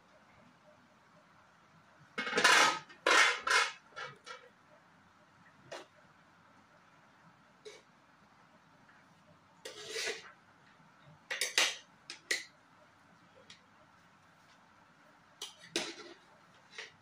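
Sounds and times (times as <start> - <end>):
metal spoon scraping a pot: 2.2 - 4.4, 9.6 - 10.4, 15.4 - 17.0.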